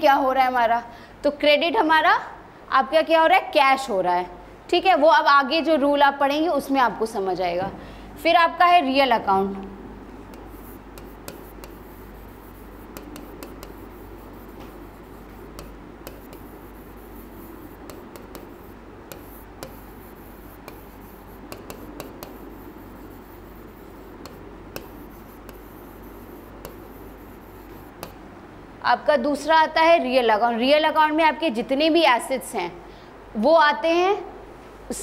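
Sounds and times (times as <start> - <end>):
steady low hum: 7.2 - 28.9
stylus tapping and scraping on glass: 10.3 - 28.2.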